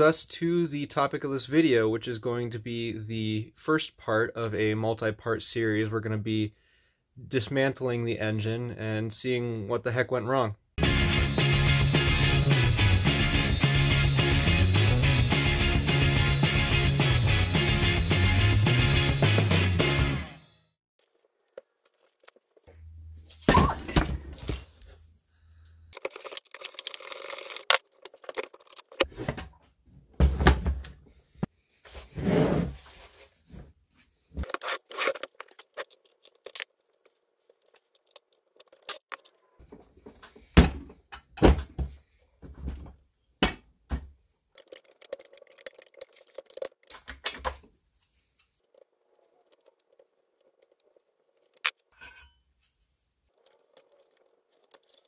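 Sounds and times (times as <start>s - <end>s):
metal parts and tools clinking: 26.0s - 29.1s, 34.4s - 39.6s, 48.4s - 52.5s.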